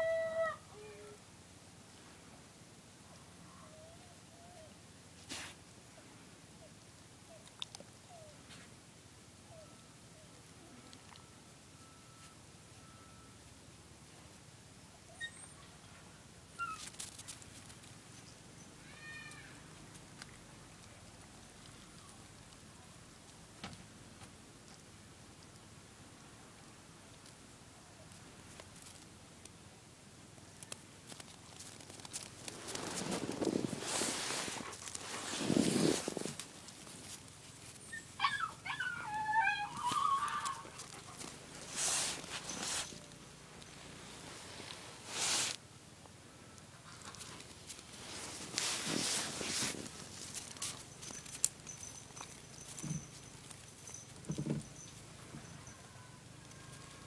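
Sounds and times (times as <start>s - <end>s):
dog whining and yipping: 15.1s - 15.6s, 16.6s - 16.9s, 37.8s - 43.0s
high whining animal cry: 37.9s - 40.8s.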